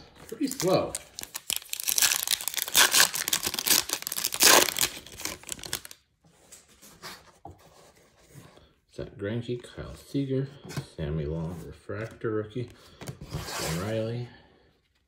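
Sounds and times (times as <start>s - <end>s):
foil wrapper tearing and crinkling: 0.4s - 6.0s.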